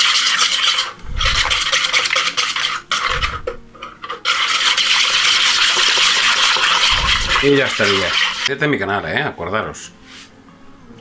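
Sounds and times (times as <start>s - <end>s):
whisk beating batter in bowl: 0.0s - 8.5s.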